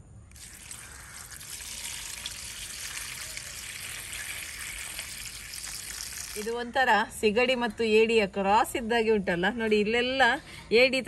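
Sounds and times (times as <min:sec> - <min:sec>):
water pouring into a steel bowl: 0:00.3 - 0:06.5.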